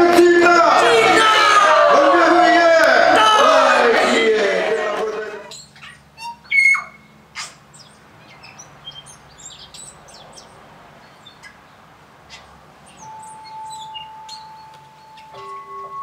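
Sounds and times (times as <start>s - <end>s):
bird chirps and whistles: 5.5s - 10.0s, 12.9s - 15.3s.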